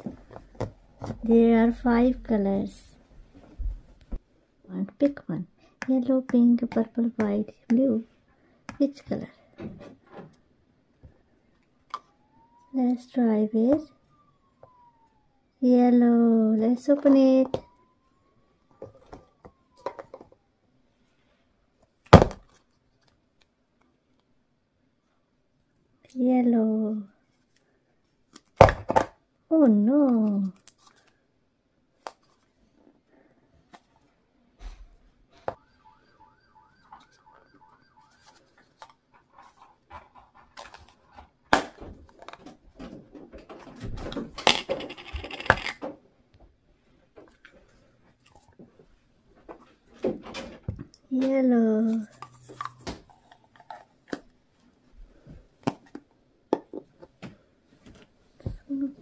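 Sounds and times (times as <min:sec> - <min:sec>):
plastic tubs clicking and knocking: 0:38.7 - 0:46.0, 0:55.6 - 0:58.6.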